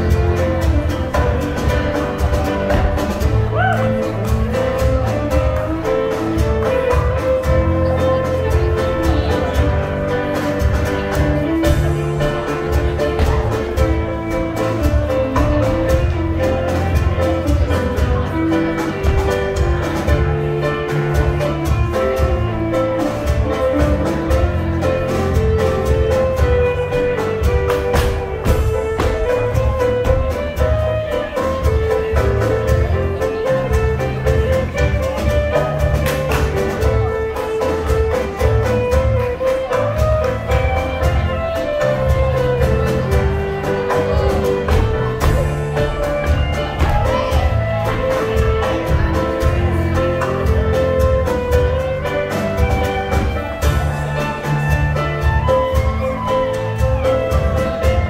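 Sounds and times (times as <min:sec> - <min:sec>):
dance band playing: 0:00.0 - 0:58.0.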